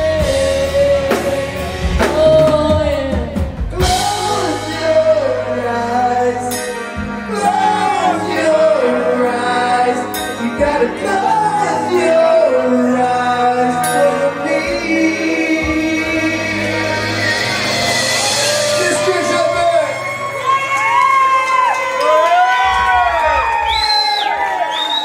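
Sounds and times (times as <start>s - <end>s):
man and woman singing: 0.0s - 17.7s
live rock band playing: 0.0s - 23.7s.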